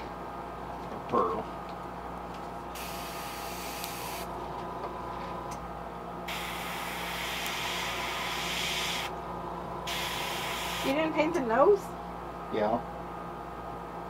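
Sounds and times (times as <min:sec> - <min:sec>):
steady low hum: 0:00.0 - 0:14.0
airbrush hissing: 0:02.8 - 0:04.3, 0:06.3 - 0:09.1, 0:09.9 - 0:11.0.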